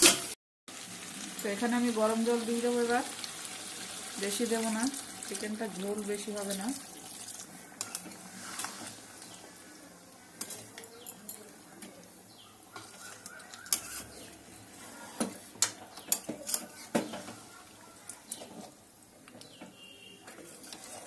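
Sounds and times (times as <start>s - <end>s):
metal spatula scraping metal pan: 12.8s - 15.2s, 20.3s - 21.0s.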